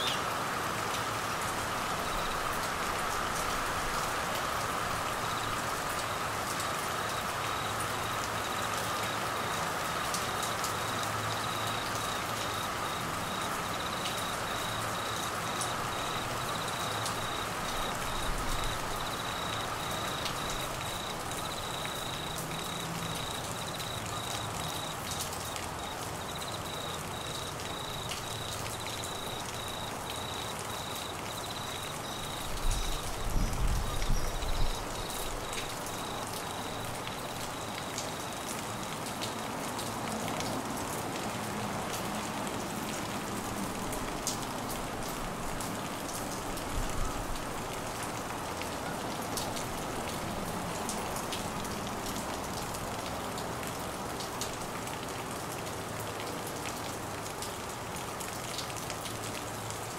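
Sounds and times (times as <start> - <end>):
heavy rain falling: 0.0 - 59.9
crickets chirping: 1.5 - 39.5.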